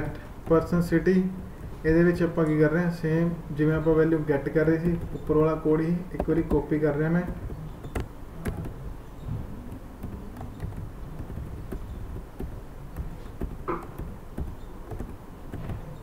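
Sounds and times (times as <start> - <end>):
keyboard and mouse clicks: 0.1 - 2.7, 3.8 - 16.0.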